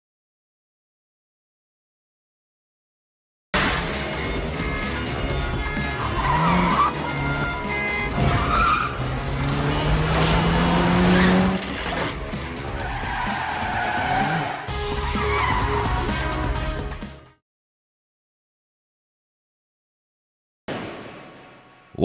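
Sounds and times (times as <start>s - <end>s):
background music: 3.6s - 17.4s
car engine revving: 5.8s - 7.4s, 8.0s - 14.7s.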